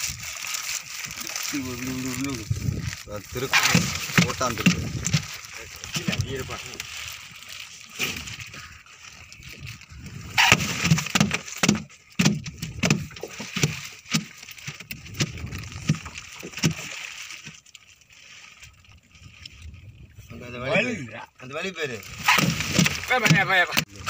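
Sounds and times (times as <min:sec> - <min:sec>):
fish slapping on boat deck: 0:03.4 - 0:06.2, 0:10.3 - 0:17.5, 0:22.1 - 0:23.9.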